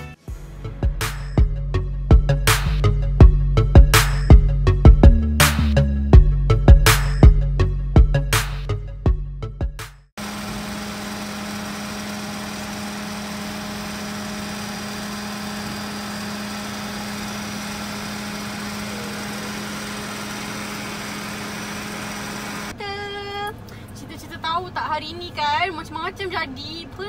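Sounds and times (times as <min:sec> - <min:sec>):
music with sharp beats: 0:00.0 - 0:10.1
car engine idling: 0:10.2 - 0:22.7.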